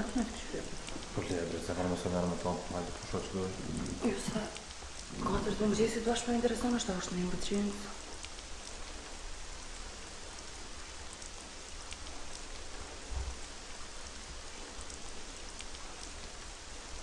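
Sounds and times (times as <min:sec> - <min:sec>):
faint ticks: 0:00.0 - 0:17.0
rain-like hiss: 0:00.0 - 0:17.0
soft low thump: 0:13.1 - 0:13.4.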